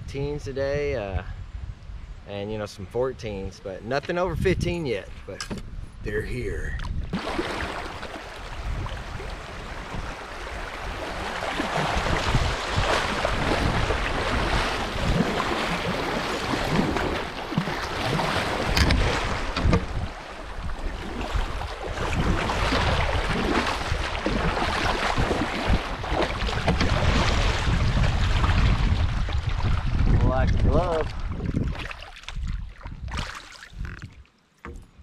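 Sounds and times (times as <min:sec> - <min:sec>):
wind buffeting microphone: 0:00.0 - 0:34.2
water rushing past a hull: 0:06.9 - 0:34.0
paddle splashing: 0:07.0 - 0:34.8.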